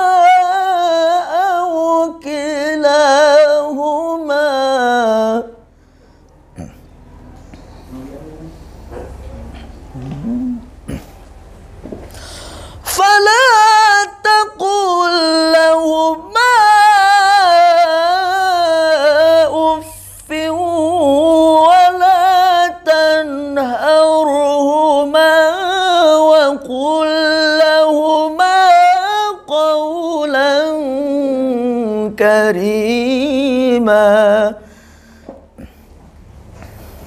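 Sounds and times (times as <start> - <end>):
man reciting melodically: 0.0 - 5.7, 12.8 - 34.9.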